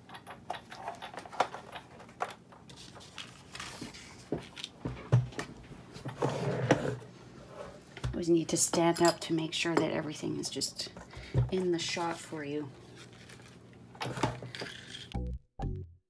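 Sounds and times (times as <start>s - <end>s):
machine scraping on table: 6.1s - 7.8s.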